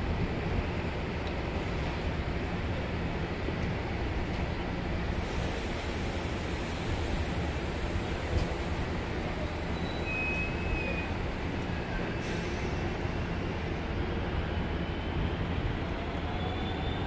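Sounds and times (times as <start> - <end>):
train wheels rumbling on rail: 0.0 - 17.0
faint wheel squeal: 9.3 - 12.7, 16.2 - 17.0.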